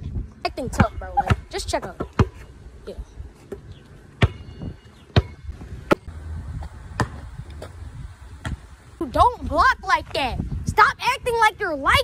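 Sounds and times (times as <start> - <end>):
basketball bouncing on asphalt: 0.7 - 2.6, 3.5 - 8.7.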